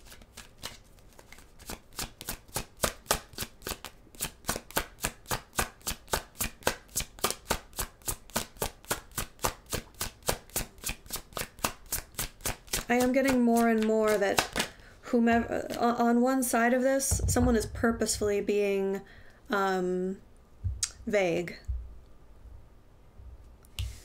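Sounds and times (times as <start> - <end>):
cards being shuffled: 0.0 - 14.8.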